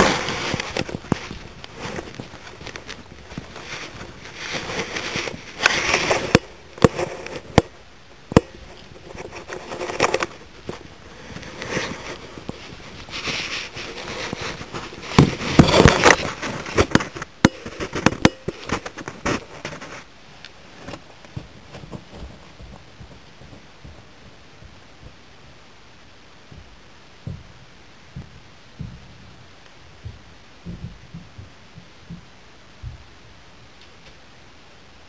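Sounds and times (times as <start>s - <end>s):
footsteps crunching through dry grass: 8.6s - 29.4s.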